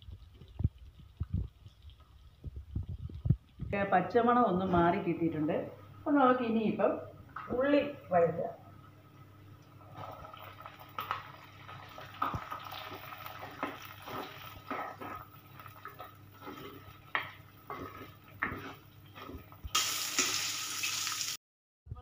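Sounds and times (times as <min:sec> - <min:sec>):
shallots sizzling in oil: 0:10.0 - 0:21.4
spoon scraping a clay pot: 0:12.9 - 0:19.7.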